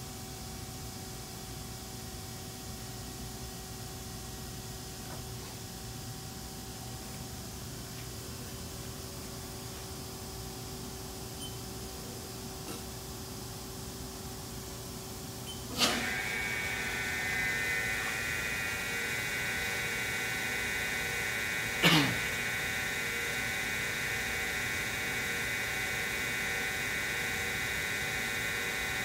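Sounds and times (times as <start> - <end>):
lathe spindle whine: 15.7 - 29.0.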